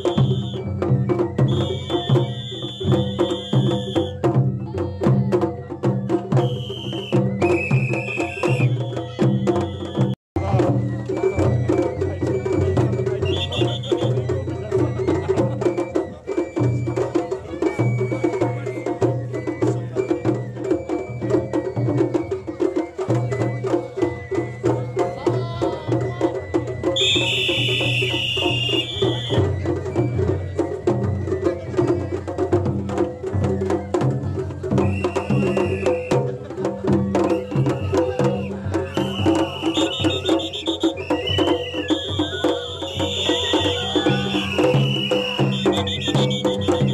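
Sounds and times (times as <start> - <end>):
drums in quick rhythm: 0.0 - 46.9
shrill high note: 27.0 - 29.4.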